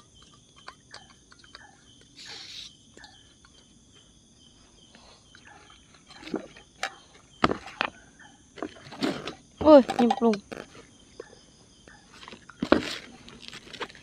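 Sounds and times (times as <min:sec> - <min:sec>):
crickets chirring: 0:00.0 - 0:14.0
gas hiss: 0:02.2 - 0:02.8.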